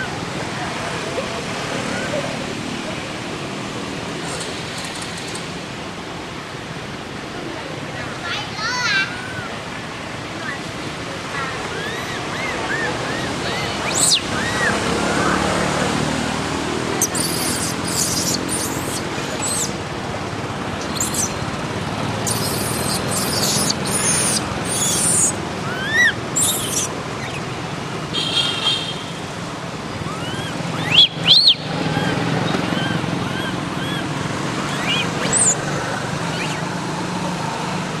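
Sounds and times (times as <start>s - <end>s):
outdoor hum: 11.3s - 28.3s, 29.7s - 37.6s
baby monkey squeaking: 11.7s - 15.3s, 17.0s - 19.8s, 20.8s - 21.4s, 22.2s - 27.4s, 30.1s - 36.7s.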